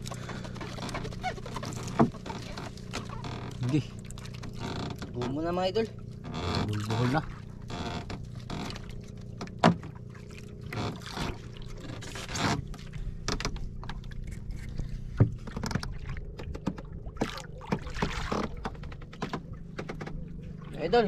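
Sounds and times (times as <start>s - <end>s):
low hum: 0.0s - 21.0s
water and wind noise: 0.0s - 21.0s
sharp knock on boat: 9.4s - 10.0s.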